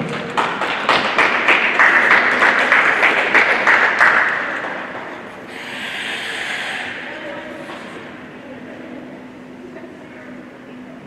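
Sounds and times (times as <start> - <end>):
audience clapping: 0.0 - 7.0.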